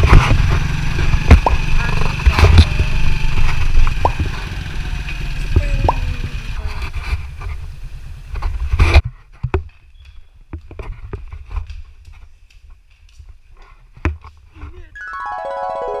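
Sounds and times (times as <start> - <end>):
motor tricycle engine rumble: 0.0 - 9.0.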